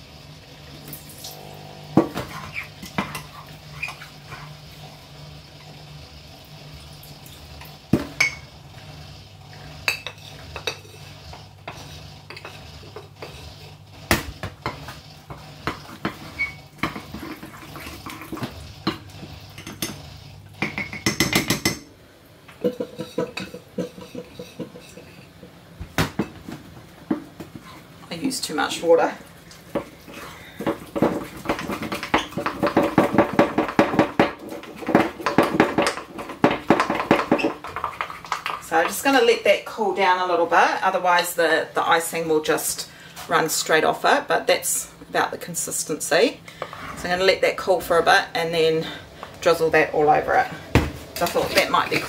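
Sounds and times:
steady low hum: 0.0 - 31.2
spoon clinking and scraping bowl: 8.2 - 8.5, 9.8 - 13.7.

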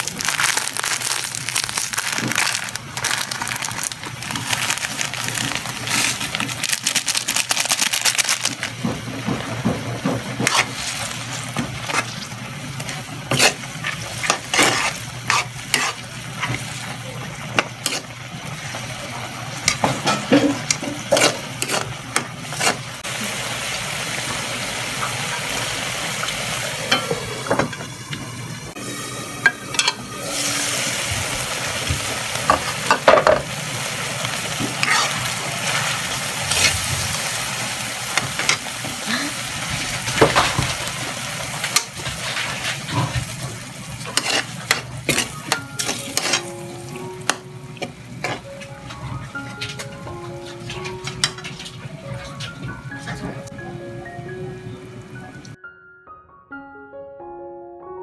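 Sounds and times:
crackers crumbled by hand: 0.0 - 8.8
clams sizzling in a wok: 0.0 - 48.4
metal ladle scraping a pan: 13.3 - 16.6, 20.0 - 22.8, 44.1 - 46.5.

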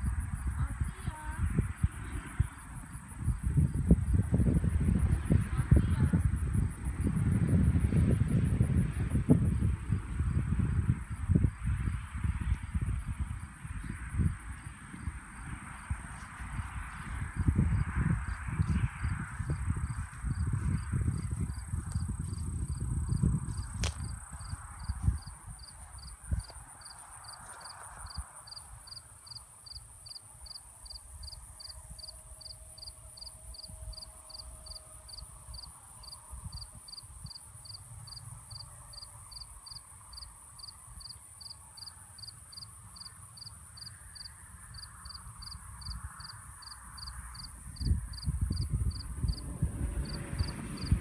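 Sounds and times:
low rumble: 1.5 - 26.8
insects trilling and chirping: 5.1 - 49.4.

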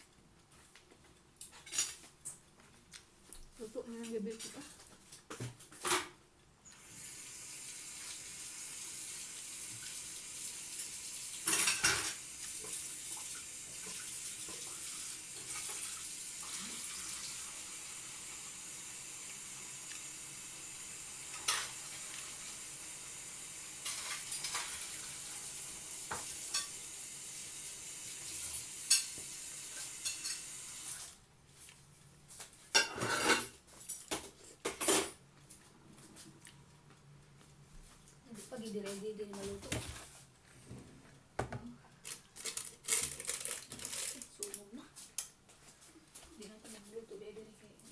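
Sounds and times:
water running from a tap: 6.8 - 31.1, 42.6 - 44.3
dishes clinking: 11.4 - 12.2, 29.8 - 30.5, 32.8 - 35.2.

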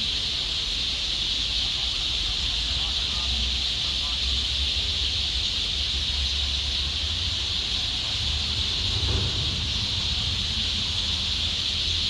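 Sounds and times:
high-pitched hiss: 0.0 - 12.0
low rumble: 8.4 - 11.6.

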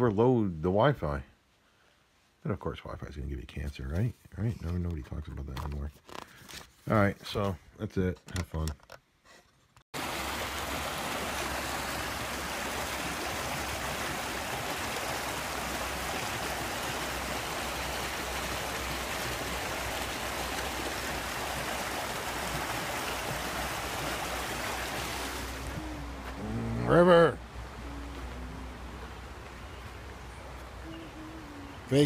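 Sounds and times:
stream rushing over boulders: 10.0 - 32.0.

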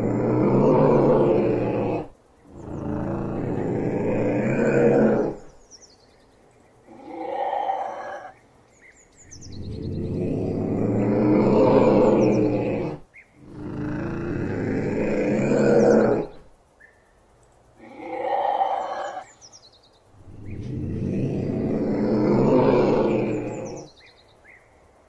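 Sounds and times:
ocelot calling: 0.0 - 6.0, 17.8 - 24.7.

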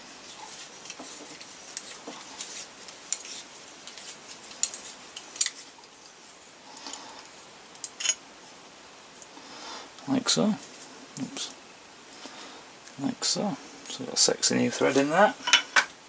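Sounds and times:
small metallic clicks and scrapes: 0.4 - 6.2.

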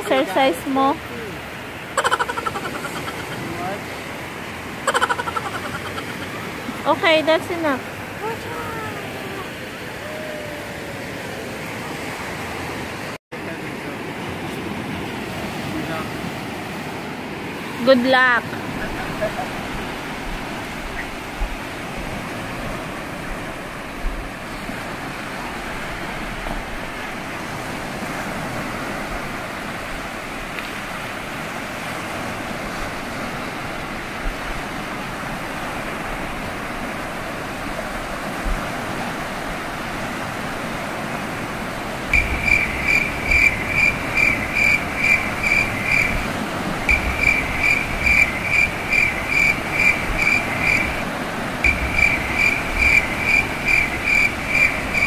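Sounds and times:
waves washing on sandy shore: 0.0 - 55.0
wind: 0.0 - 55.0
high-pitched chirp: 42.2 - 46.2, 46.9 - 50.9.

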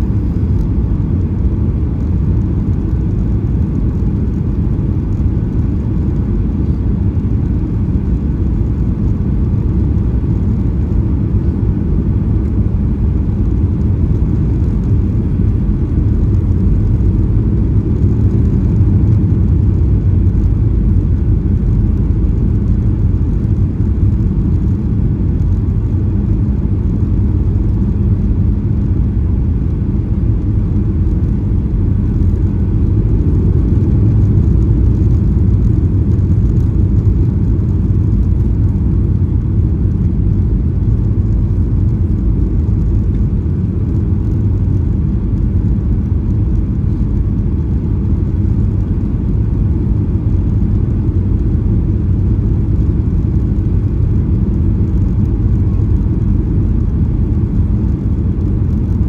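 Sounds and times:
air rushing in cabin: 0.0 - 59.0
jet engines rumbling: 0.0 - 59.0.

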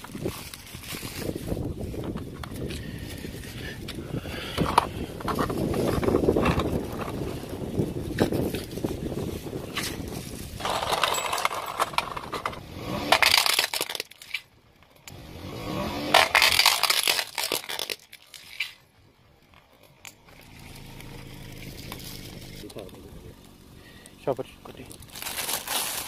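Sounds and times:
tyre crushing plastic toy car: 9.7 - 15.2, 16.0 - 18.9, 24.8 - 26.0.

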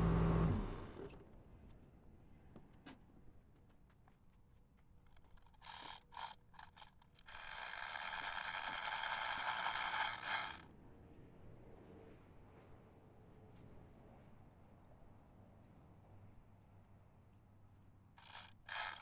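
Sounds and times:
metal ratchet clicking: 5.1 - 10.6, 18.2 - 19.0.

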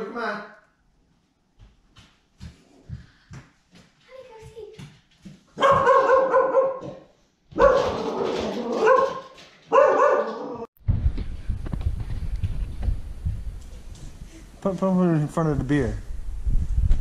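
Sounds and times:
dog barking: 5.6 - 10.7
low rumbling and knocking: 10.8 - 14.1.

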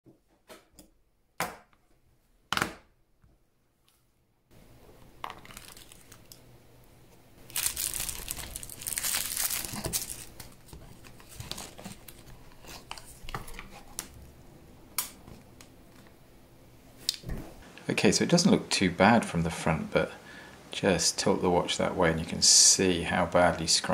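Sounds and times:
bubble wrap crinkling: 5.1 - 6.5, 7.3 - 14.2.

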